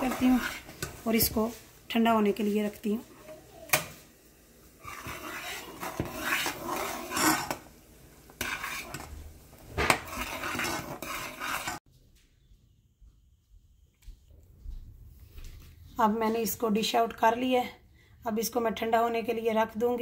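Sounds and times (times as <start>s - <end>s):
metal spoon scraping saucepan: 0.0s - 1.3s, 4.8s - 7.6s, 8.4s - 11.8s.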